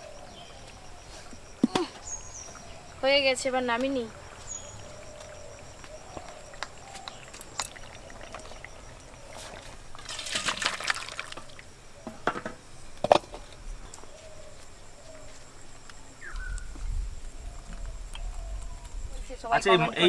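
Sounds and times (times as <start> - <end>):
liquid pouring into a steel bowl: 7.4 - 11.6.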